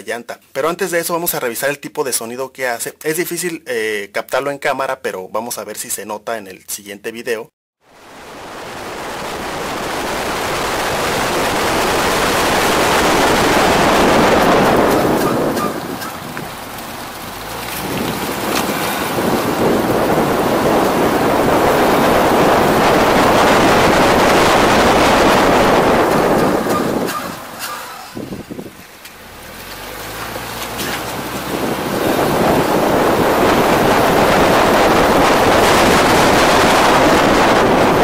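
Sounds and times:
car tyre roar: 8.0 - 38.0
wind buffeting microphone: 8.1 - 29.0, 30.5 - 38.0.

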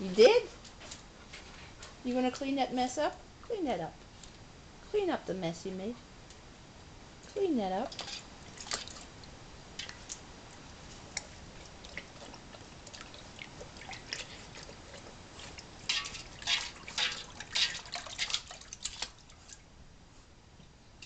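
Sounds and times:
dog lapping water: 7.9 - 19.6.

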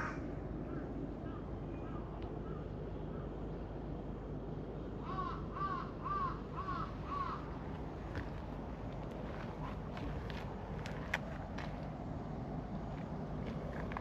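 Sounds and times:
crow cawing: 0.0 - 2.6, 5.0 - 7.5
low background rumble: 0.0 - 14.0.

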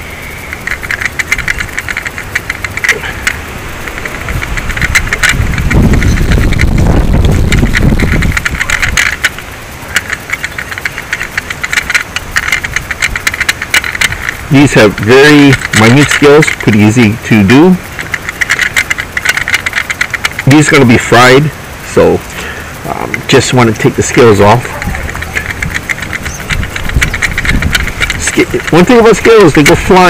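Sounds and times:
loud low rumble: 0.0 - 19.2
fish scaler rasping: 0.0 - 30.0.

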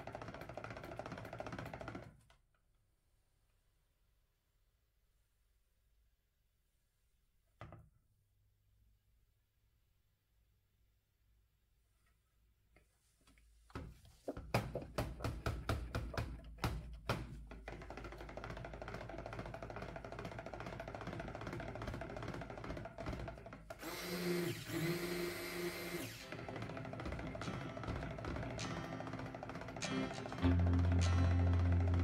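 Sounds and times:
music with knocking percussive beat: 14.6 - 23.4, 26.0 - 32.0
stick blender motor: 17.5 - 32.0.

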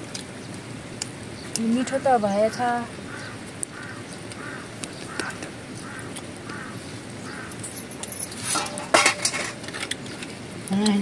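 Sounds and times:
metal bowls and utensils clinking: 7.6 - 11.0.

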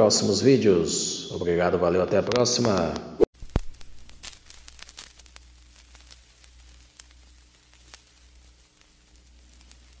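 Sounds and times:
low steady hum: 3.4 - 10.0
vinyl record crackle: 3.4 - 10.0.

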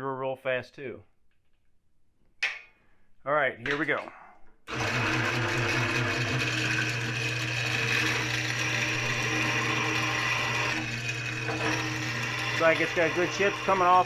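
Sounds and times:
drill press drilling steel: 4.7 - 14.0.

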